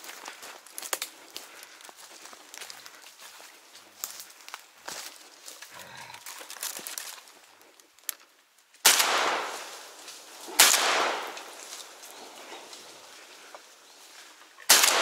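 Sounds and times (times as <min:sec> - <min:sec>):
shotgun shots with echo: 0:08.8 - 0:09.7, 0:10.5 - 0:11.5, 0:14.7 - 0:15.0.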